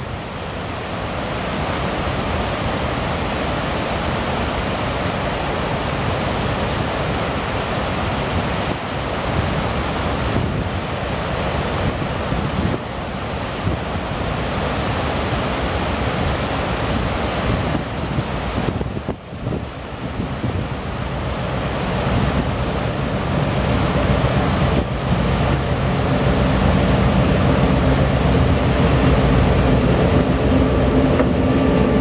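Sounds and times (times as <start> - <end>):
waterfall rushing: 0.0 - 32.0
wind buffeting microphone: 8.0 - 32.0.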